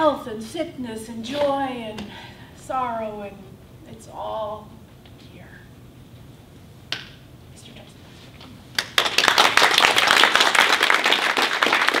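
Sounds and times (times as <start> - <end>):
audience applauding: 8.8 - 12.0.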